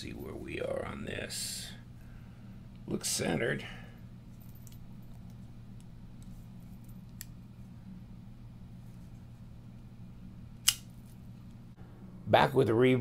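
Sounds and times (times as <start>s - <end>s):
low steady hum: 0.0s - 13.0s
folding knife clicks: 10.6s - 10.9s.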